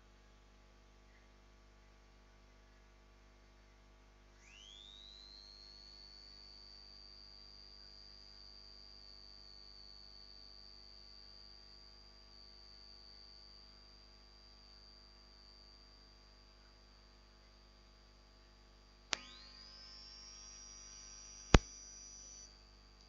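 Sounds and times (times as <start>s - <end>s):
low mains hum: 0.0s - 23.0s
high-pitched electronic whine: 4.4s - 16.2s, 19.1s - 22.8s.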